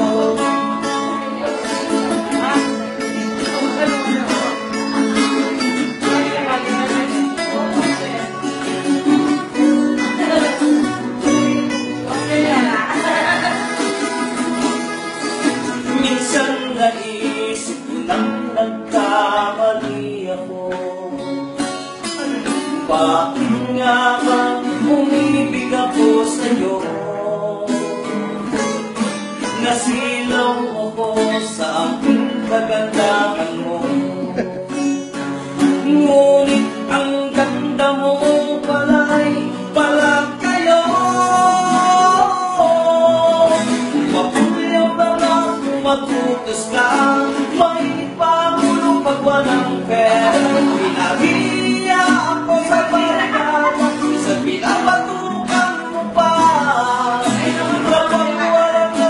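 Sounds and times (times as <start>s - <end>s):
acoustic guitars: 0.0s - 59.0s
man singing: 0.0s - 59.0s.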